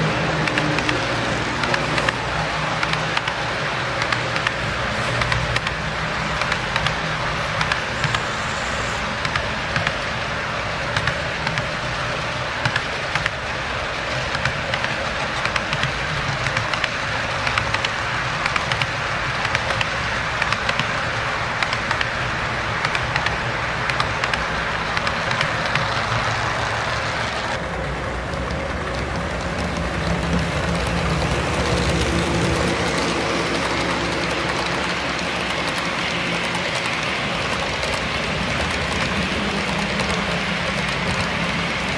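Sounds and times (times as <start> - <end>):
low steady locomotive hum: 0.0 - 41.9
model train cars rolling: 0.0 - 41.9
sharp wheel clicks: 0.4 - 10.0.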